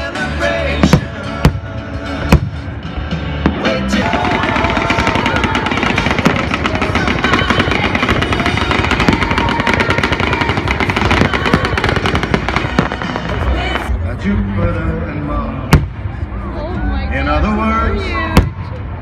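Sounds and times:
fireworks bangs and crackles: 0.6s - 14.0s, 15.6s - 16.3s, 18.1s - 19.0s.

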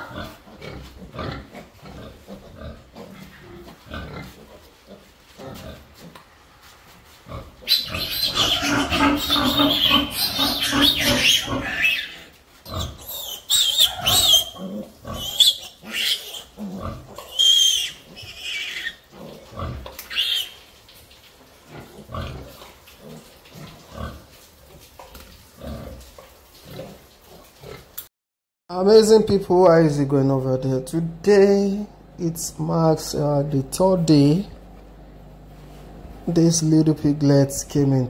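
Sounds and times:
piglet squealing: 7.6s - 19.1s, 19.9s - 20.6s.

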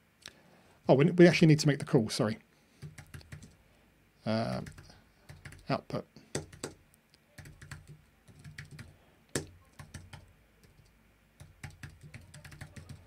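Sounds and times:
typing on computer keyboard: 2.8s - 3.6s, 4.4s - 5.7s, 6.4s - 6.8s, 7.4s - 13.0s.

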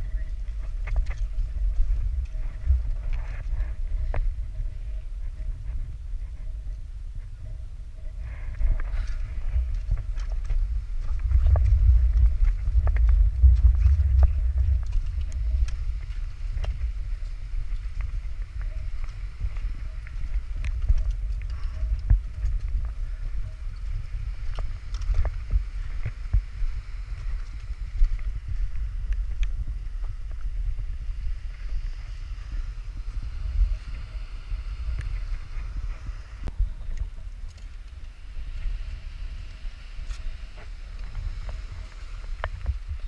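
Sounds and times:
footsteps and gear clicking: 0.0s - 5.5s, 7.5s - 31.9s, 34.9s - 39.0s
wind buffeting microphone: 0.0s - 43.0s.

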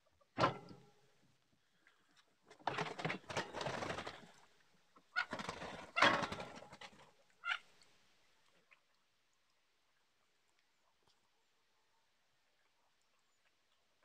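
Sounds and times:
ducks' wings flapping: 2.8s - 4.4s, 5.2s - 7.6s.

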